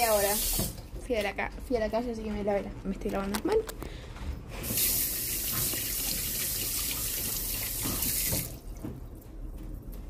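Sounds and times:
tap water running into sink: 0.0s - 0.9s, 4.7s - 8.9s.

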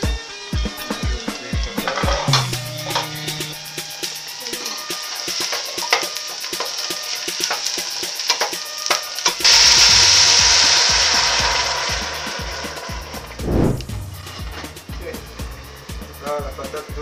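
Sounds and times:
vegetables sizzling: 0.8s - 16.2s
loud hiss of steam: 2.7s - 17.0s
water pouring into hot pot: 4.4s - 13.4s.

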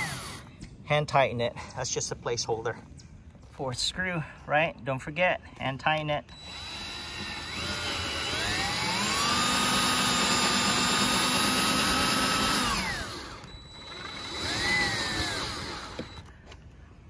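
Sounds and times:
power drill driving screw: 0.0s - 0.4s, 6.3s - 16.3s.

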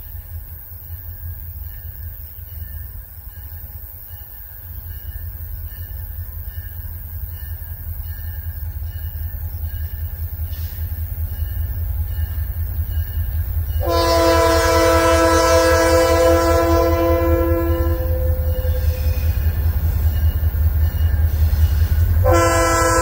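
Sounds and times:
locomotive low rumble: 0.0s - 23.0s
locomotive air horn chord: 13.8s - 19.7s, 22.1s - 23.0s.

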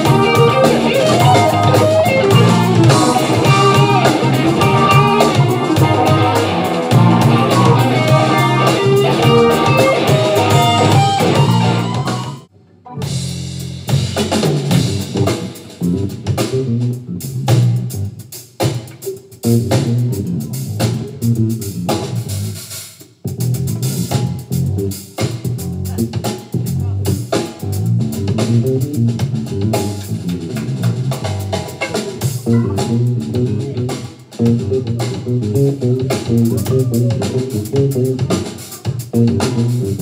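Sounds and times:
electric guitar: 0.0s - 13.2s, 28.2s - 40.0s
electric bass: 0.0s - 18.3s, 19.4s - 40.0s
drums: 0.0s - 40.0s.

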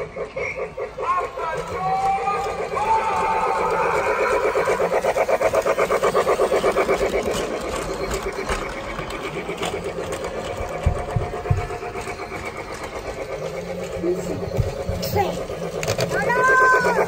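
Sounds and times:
toy train mechanical chugging: 0.0s - 17.0s.

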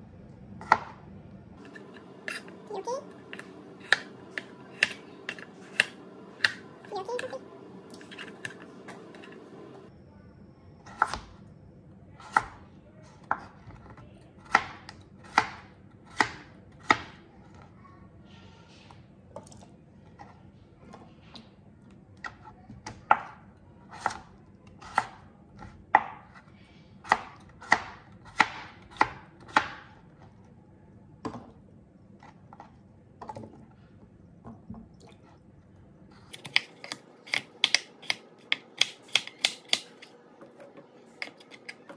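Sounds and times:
knife chopping on cutting board: 3.3s - 6.6s, 27.1s - 30.0s, 36.3s - 40.1s.

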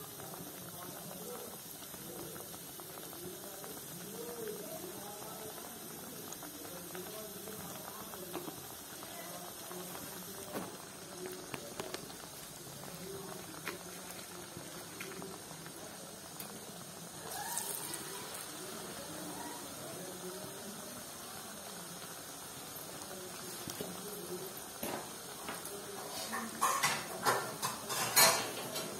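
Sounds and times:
oil sizzling deep-frying: 0.0s - 28.9s.

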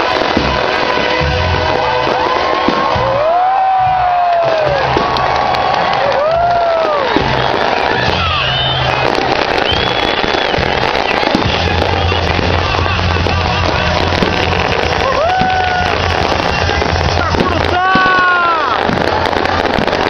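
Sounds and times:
crowd voices: 0.0s - 20.0s
fireworks crackling and popping: 0.0s - 20.0s
music with heavy bass: 10.7s - 17.7s.

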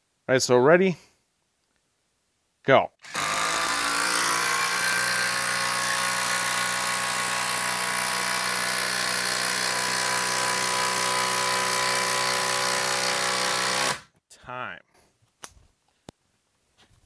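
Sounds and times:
impact driver hammering: 3.0s - 14.1s.

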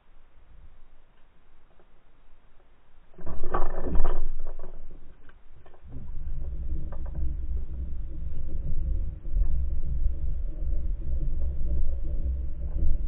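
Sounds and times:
low underwater rumble: 3.2s - 13.0s.

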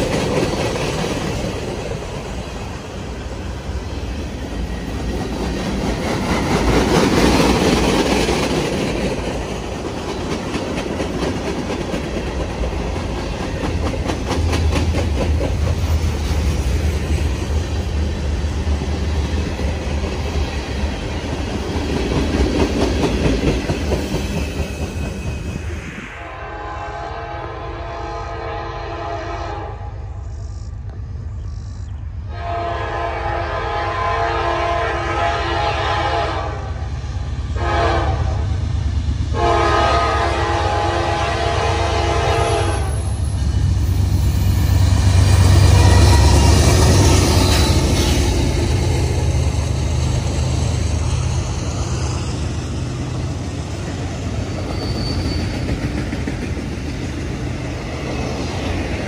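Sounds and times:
train cars rolling on rails: 0.0s - 29.3s, 29.9s - 59.0s
train horn blasts: 26.2s - 30.1s, 32.3s - 36.9s, 37.6s - 38.6s, 39.3s - 43.2s.

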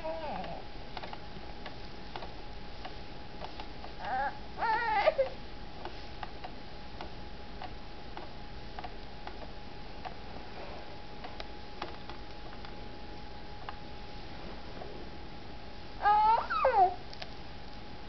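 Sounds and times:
baby crying: 0.0s - 0.6s, 4.0s - 5.4s, 16.0s - 17.0s
faint ticking clicks: 0.3s - 4.2s, 5.2s - 10.2s.

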